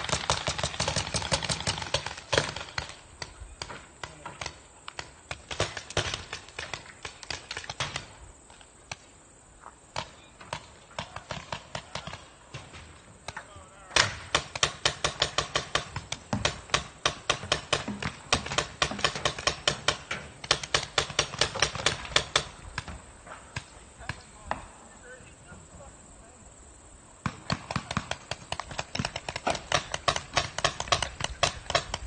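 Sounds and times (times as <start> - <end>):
paintball markers firing: 13.3 - 23.0, 27.2 - 32.0.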